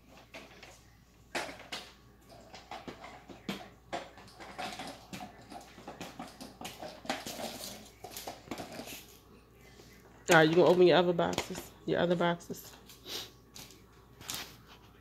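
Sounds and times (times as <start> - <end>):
wrapping paper rustling: 12.7 - 15.0.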